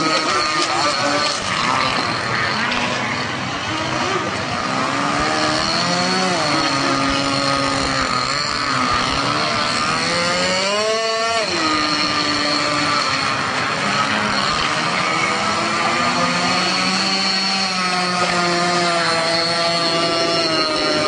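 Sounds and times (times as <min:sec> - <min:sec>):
model boat engines revving: 0:00.0 - 0:21.0.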